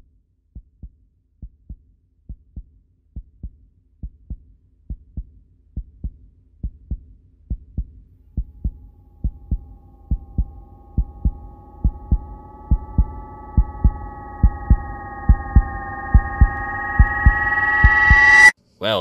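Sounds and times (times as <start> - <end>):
heartbeat thumping: 0.6 - 18.4
steady high tone: 8.6 - 18.5.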